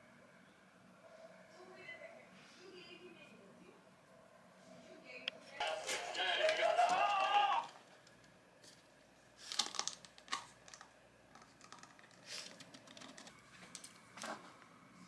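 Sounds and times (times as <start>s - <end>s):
plastic trays crackling: 5.6s - 14.5s.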